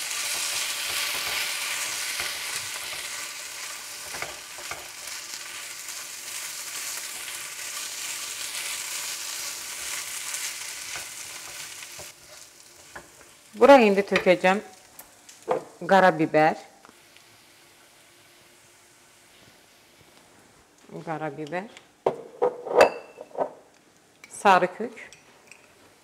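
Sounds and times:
rice sizzling in a frying pan: 0.0s - 15.8s, 16.9s - 20.4s.

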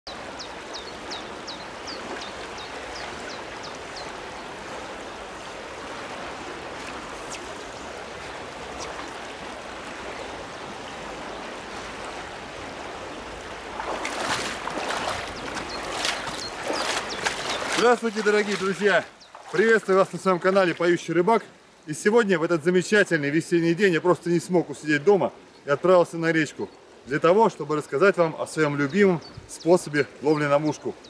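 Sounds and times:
river water rushing: 0.1s - 22.8s
legs splashing through water: 0.9s - 21.1s
bird chirping: 15.0s - 19.6s.

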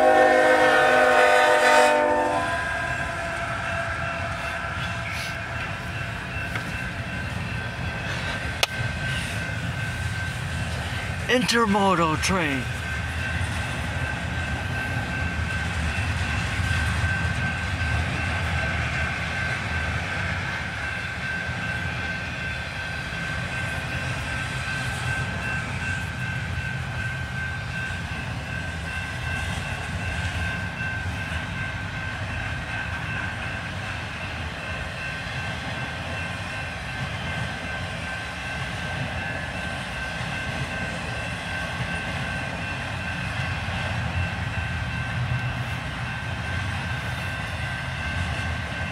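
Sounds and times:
freight train wheels rumbling: 0.0s - 48.9s.

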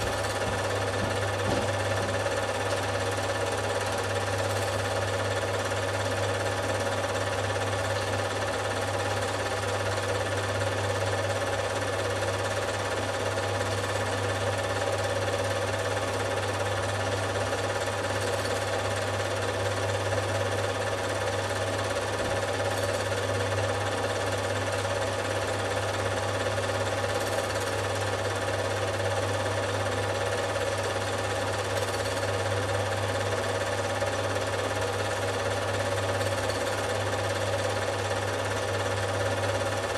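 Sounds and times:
low motor hum: 0.0s - 2.9s
film projector clatter: 0.0s - 39.9s.

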